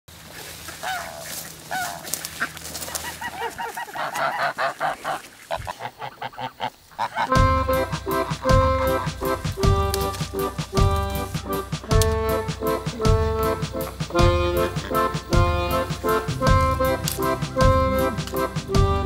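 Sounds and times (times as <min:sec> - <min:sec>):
geese honking: 0:00.2 - 0:19.0
music: 0:07.3 - 0:19.0.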